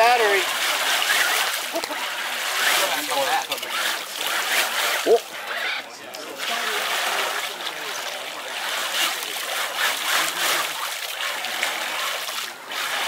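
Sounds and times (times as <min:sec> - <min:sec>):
muddy water splashing: 0:00.0 - 0:13.0.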